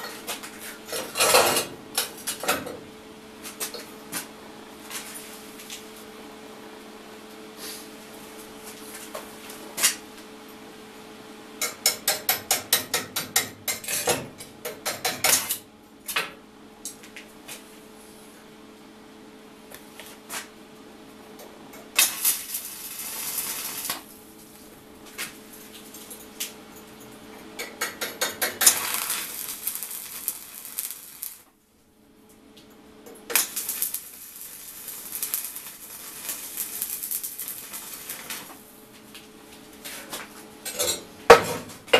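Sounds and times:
welding arc crackling and hissing: 21.9 - 24.7, 27.6 - 31.5, 33.3 - 40.1.

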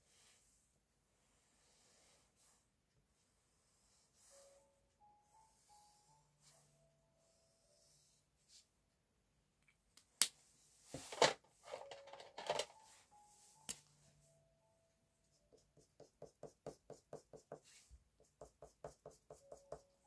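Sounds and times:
marker scribbling on paper: 15.3 - 20.0.

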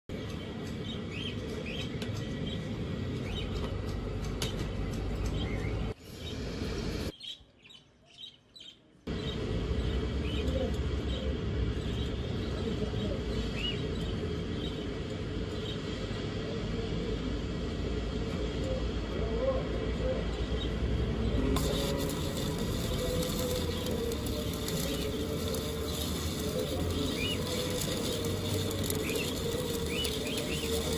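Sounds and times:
small birds chirping: 7.1 - 16.2, 20.3 - 30.9.

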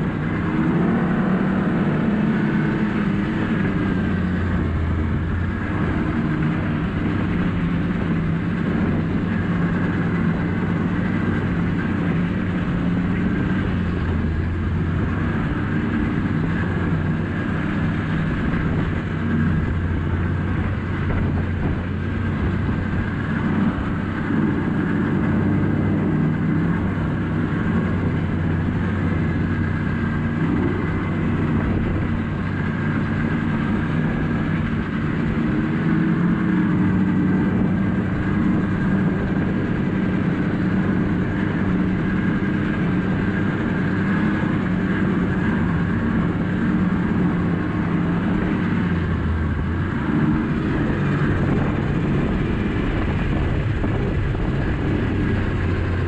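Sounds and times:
snowmobile engine running: 0.0 - 56.0.

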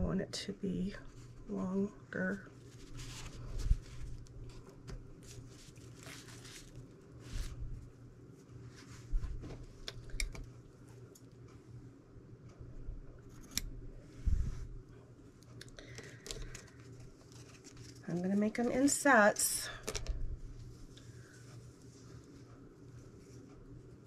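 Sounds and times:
fabric handling: 2.2 - 9.8.

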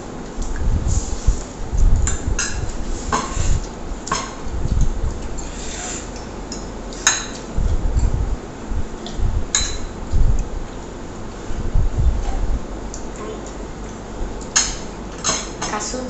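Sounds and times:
cutlery clinking and scraping plates: 2.1 - 4.4.

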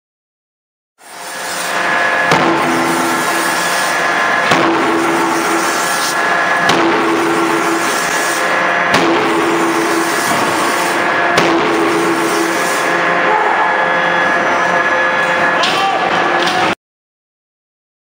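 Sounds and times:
noisy background: 1.0 - 16.8
steady machine hum: 1.0 - 16.8
forging hammer striking metal: 2.0 - 13.3.

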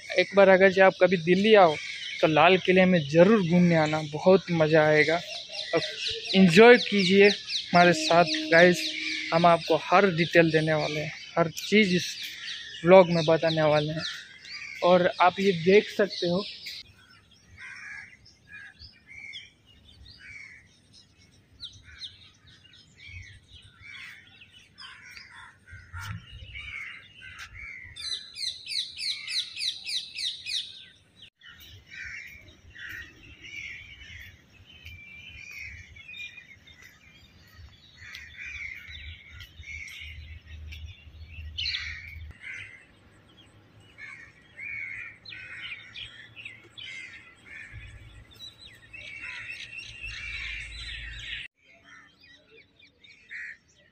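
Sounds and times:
small birds chirping: 0.0 - 53.9
bird repeating high notes: 5.2 - 11.2.

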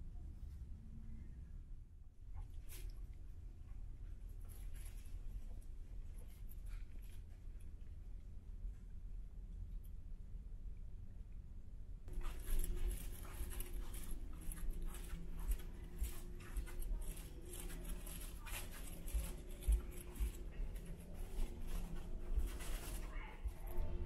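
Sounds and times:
low machinery hum: 3.2 - 24.0
footsteps on carpet: 12.1 - 24.0.

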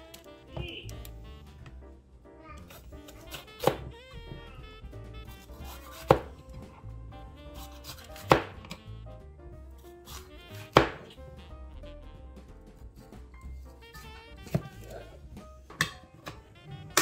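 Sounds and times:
knife chopping on cutting board: 2.6 - 8.9, 9.8 - 11.2, 14.0 - 16.4.

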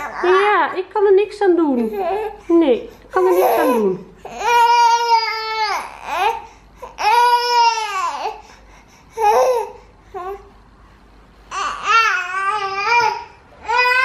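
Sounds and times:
baby crying: 0.0 - 0.6, 1.8 - 2.4, 3.2 - 8.4, 9.2 - 10.5, 11.5 - 14.0
baby whimpering: 0.0 - 0.6, 1.8 - 2.5, 9.1 - 10.5.

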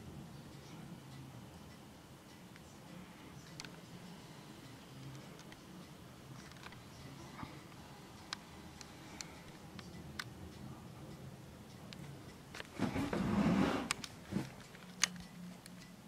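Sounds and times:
sharp clicks: 13.9 - 15.9.

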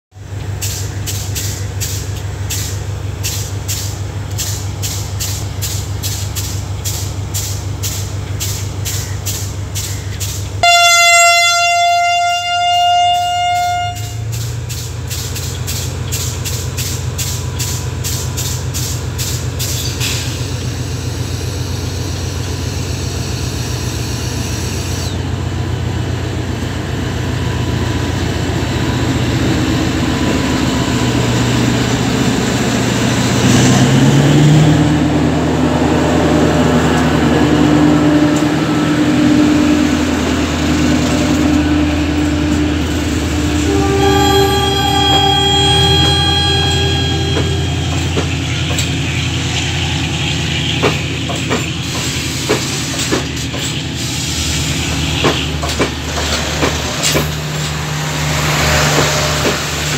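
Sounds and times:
diesel train engine hum: 0.1 - 59.9
train horn blast: 10.6 - 14.4, 35.9 - 50.1.

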